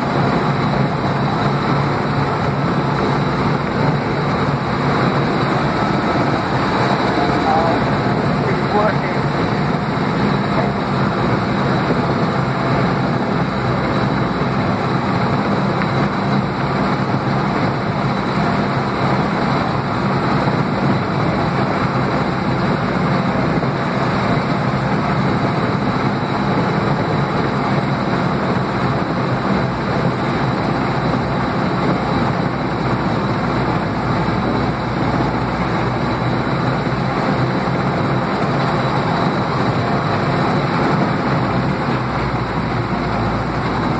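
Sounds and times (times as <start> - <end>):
tank engine running: 0.0 - 43.9.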